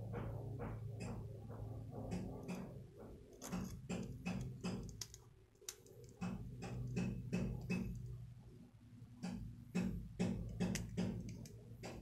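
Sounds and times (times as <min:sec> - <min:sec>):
screwdriver clicking on metal parts: 0:03.3 - 0:08.2, 0:09.3 - 0:12.0.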